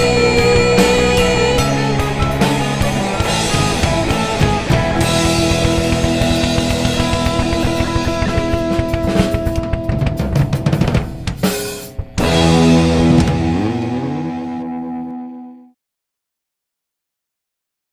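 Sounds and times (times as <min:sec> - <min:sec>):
rock band playing live: 0:00.0 - 0:15.2
loud ringing band chord: 0:00.0 - 0:15.7
snare and bass drum hits: 0:03.2 - 0:13.7.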